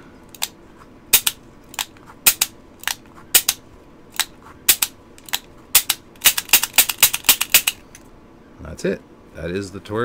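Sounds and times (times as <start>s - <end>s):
revolver hammer and cylinder clicks: 4.2s - 8.0s.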